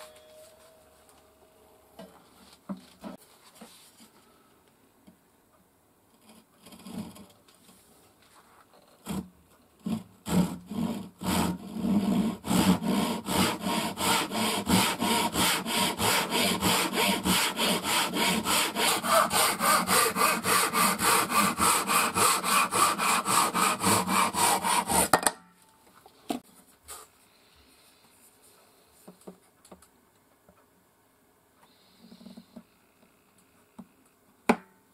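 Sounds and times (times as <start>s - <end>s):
hand saw cutting wood: 9.0s - 25.2s.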